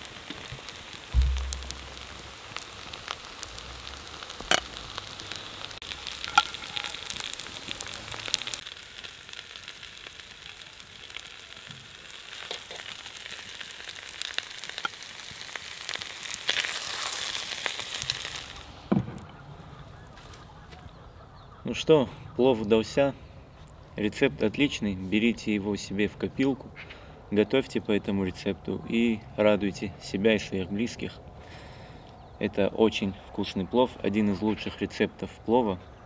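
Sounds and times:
hot fat sizzling and crackling: 0.0 - 19.3.

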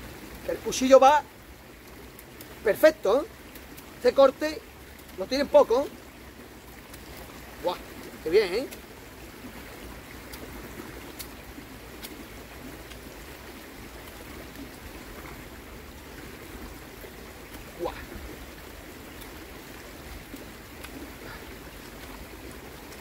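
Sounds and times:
creek rushing: 0.0 - 23.0
faint clicks: 11.1 - 11.4.

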